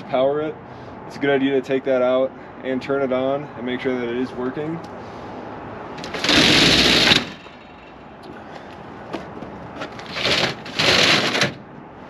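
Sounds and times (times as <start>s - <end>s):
roll-up door rattling: 6.0s - 7.7s, 9.8s - 11.6s.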